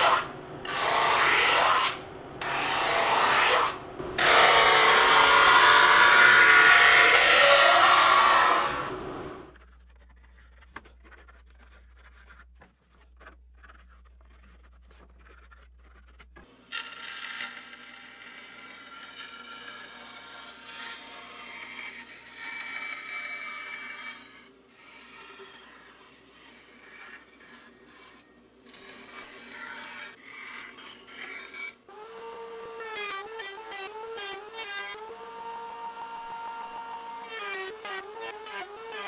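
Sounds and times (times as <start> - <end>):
bandsaw cutting wood: 0.0 - 9.5, 16.7 - 39.0.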